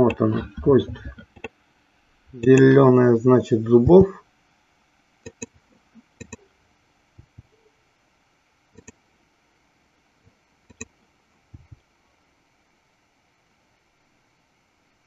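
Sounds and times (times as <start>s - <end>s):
low room hiss: 0.0s - 15.0s
faint mouse and keyboard clicks: 8.8s - 9.0s, 10.7s - 10.9s.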